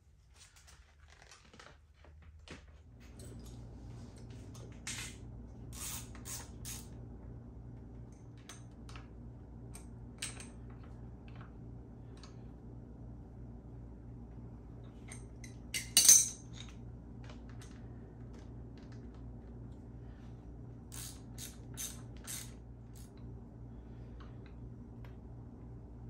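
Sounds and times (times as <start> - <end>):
steady low hum: 2.4 - 26.0
metal parts clinking: 15.0 - 16.8.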